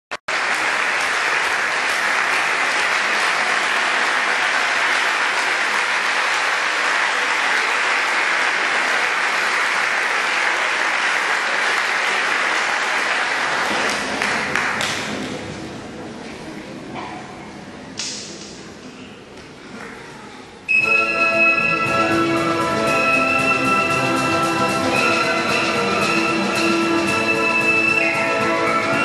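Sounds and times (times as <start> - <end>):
audience applauding in a hall: 0.2 - 15.5.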